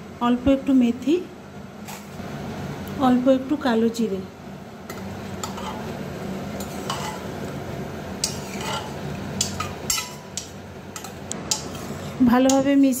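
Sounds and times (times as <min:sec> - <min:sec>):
metal spoon scraping a pot: 0:04.9 - 0:06.0, 0:06.6 - 0:07.4, 0:08.2 - 0:12.7.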